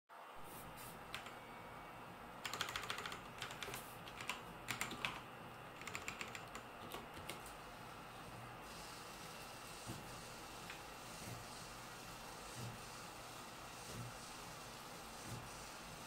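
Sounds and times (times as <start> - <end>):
computer keyboard typing: 1.1 - 1.4, 2.4 - 7.5.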